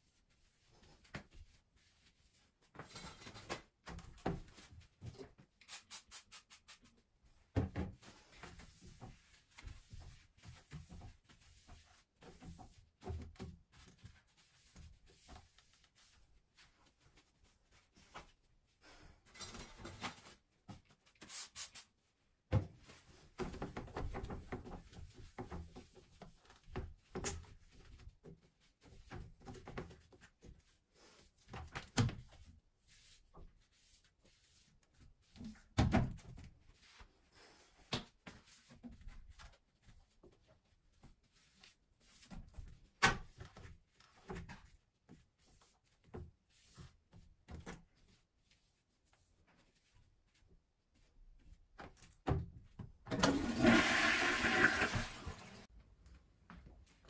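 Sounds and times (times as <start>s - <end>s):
cloth rubbing on ceramic toilet: 0.0s - 2.8s, 7.0s - 19.0s, 32.2s - 35.8s, 36.4s - 51.6s, 53.2s - 55.7s.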